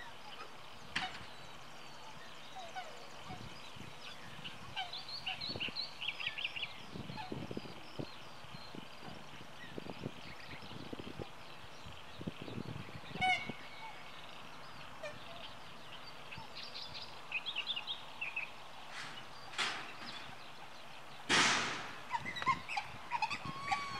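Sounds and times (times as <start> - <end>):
steady outdoor hiss: 0.0 - 23.9
trilled bird call: 12.8 - 23.9.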